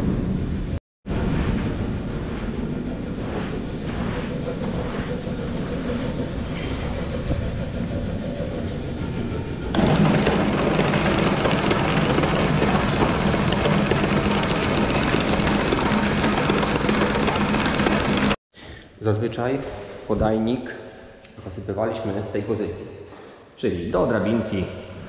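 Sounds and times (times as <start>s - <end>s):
auger machinery running: 1.8s - 18.4s.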